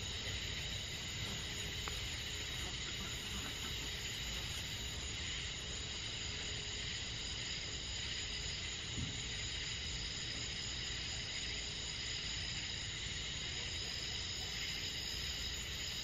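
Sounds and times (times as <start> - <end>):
crickets and insects trilling: 0.0 - 16.0.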